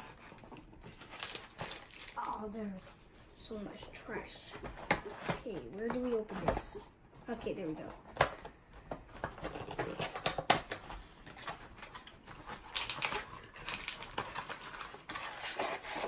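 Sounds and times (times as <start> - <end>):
paper packaging crinkling: 0.0 - 3.1, 9.2 - 16.0
cardboard box tearing open: 12.6 - 16.0.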